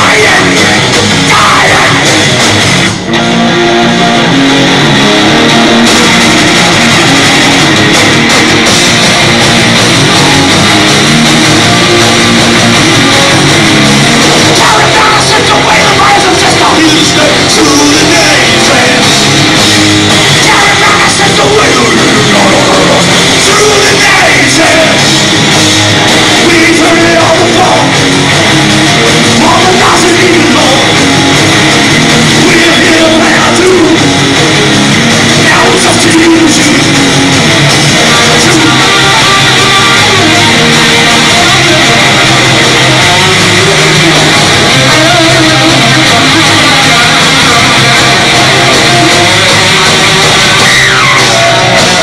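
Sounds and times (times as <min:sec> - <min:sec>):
person singing: 0:00.0 - 0:02.2, 0:14.5 - 0:19.1, 0:20.4 - 0:25.1, 0:26.4 - 0:28.0, 0:29.3 - 0:31.1, 0:32.4 - 0:34.2, 0:43.1 - 0:49.9
bass guitar: 0:00.0 - 0:52.0
distorted electric guitar: 0:00.0 - 0:52.0
drums: 0:00.0 - 0:52.0.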